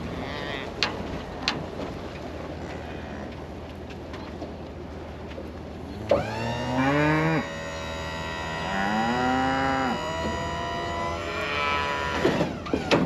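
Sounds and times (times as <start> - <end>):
cattle mooing: 0.0 - 0.8, 2.6 - 3.4, 5.9 - 12.4.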